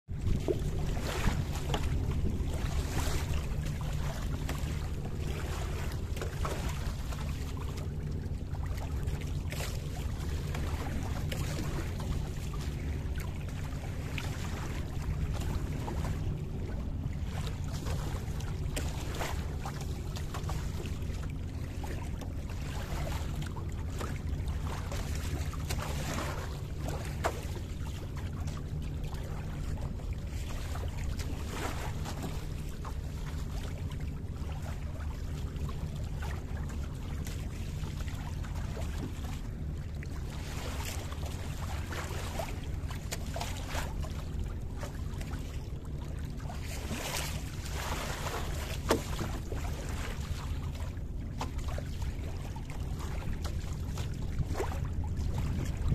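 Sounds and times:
water splashing along boat hull: 0.0s - 55.9s
wind buffeting microphone: 54.3s - 55.9s.

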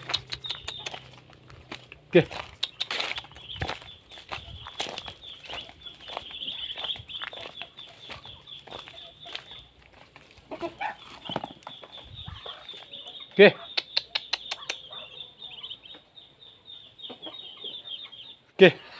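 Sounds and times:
footsteps crunching on dry leaves: 0.0s - 13.0s
poultry clucking and peeping: 0.0s - 18.9s.

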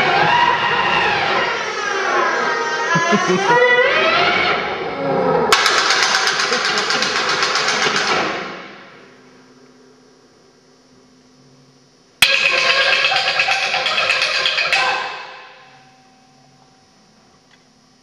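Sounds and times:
rapid clattering percussion: 5.5s - 8.9s, 12.2s - 15.9s
faint low hum: 8.8s - 18.0s.

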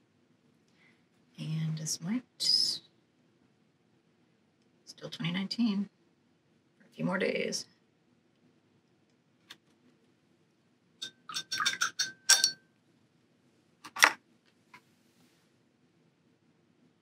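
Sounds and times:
small hard clinks and taps: 11.0s - 12.6s.

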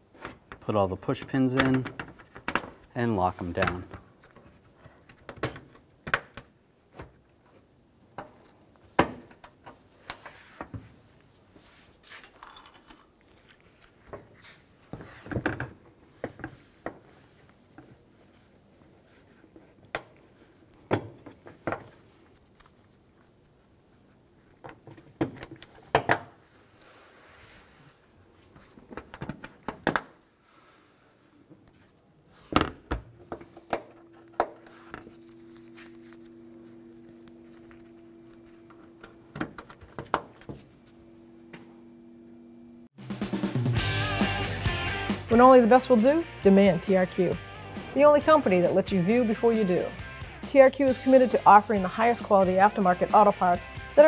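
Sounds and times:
plastic handling: 33.2s - 40.8s.

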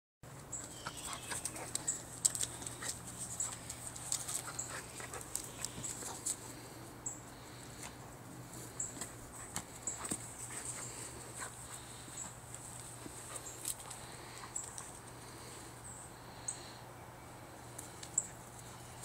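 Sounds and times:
dog playing with rope toy: 0.6s - 6.4s.

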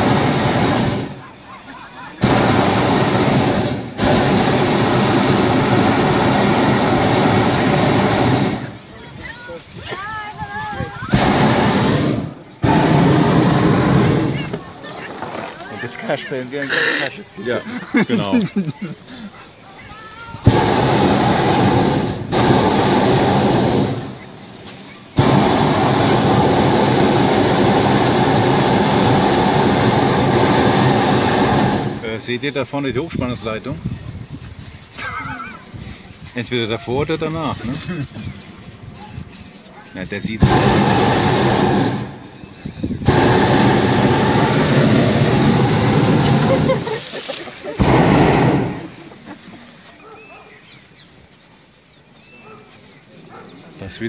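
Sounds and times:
propane burner blast: 0.0s - 52.3s.

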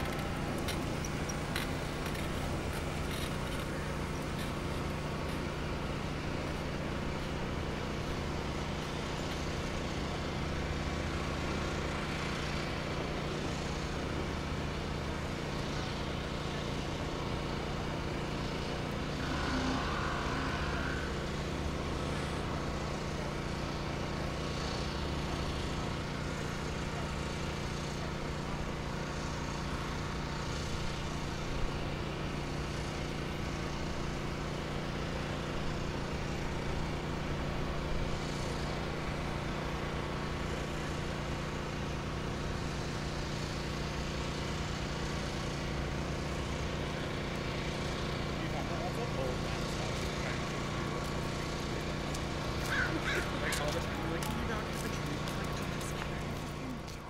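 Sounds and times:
pressure washer running: 0.0s - 57.0s.

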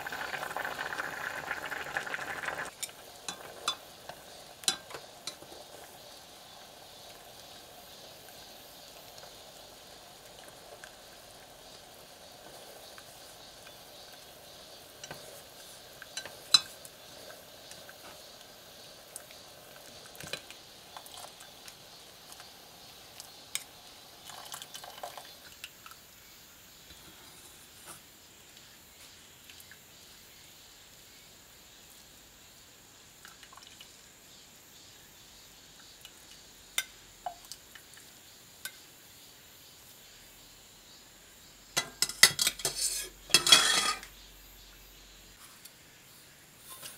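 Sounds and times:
pot simmering: 0.0s - 26.1s, 41.7s - 44.3s
chopsticks tapping metal pot: 41.8s - 44.1s.

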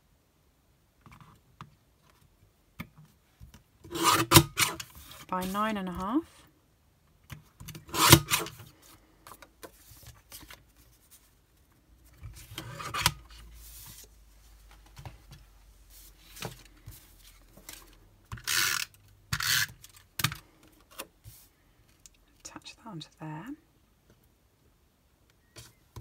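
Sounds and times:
tape runner zipping: 3.9s - 4.9s, 7.8s - 8.6s, 18.3s - 20.0s
paper trimmer blade sliding: 7.9s - 8.6s.

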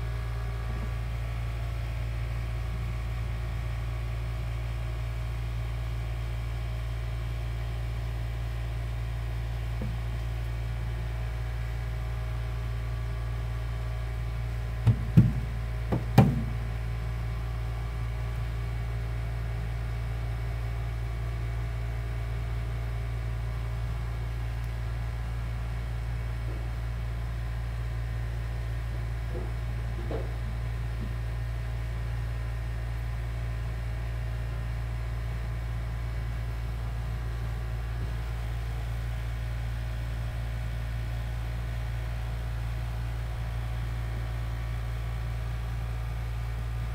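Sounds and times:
low hum with faint hiss: 8.0s - 46.9s
sharp knocks: 14.8s - 16.6s.

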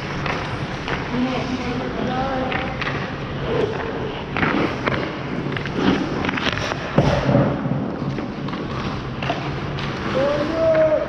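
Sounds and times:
skates scraping on ice: 0.0s - 11.0s
pads and stick thudding: 2.5s - 11.0s.

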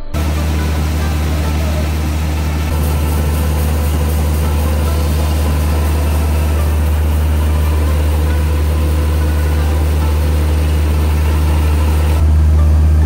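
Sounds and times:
milling machine low hum: 0.0s - 13.0s
rushing grain: 0.0s - 13.0s.

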